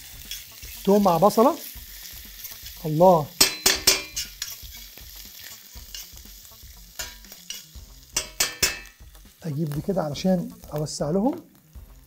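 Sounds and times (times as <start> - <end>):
onion frying in oil: 0.0 - 12.0
metal spoon scraping a pan: 0.1 - 1.0, 2.0 - 9.0.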